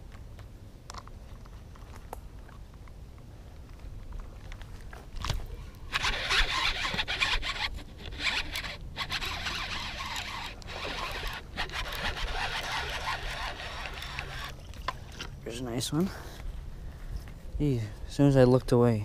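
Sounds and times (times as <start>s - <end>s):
fishing reel gears whirring: 5.9s - 14.7s.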